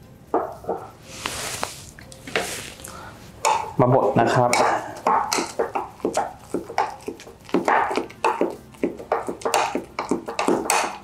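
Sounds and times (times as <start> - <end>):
spatula mashing banana in plastic jug: 3.5 - 11.0.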